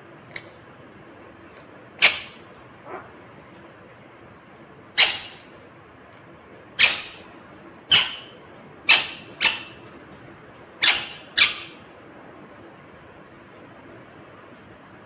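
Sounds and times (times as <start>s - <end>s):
parakeet calls: 2.0s - 4.1s, 4.9s - 5.8s, 6.6s - 11.9s.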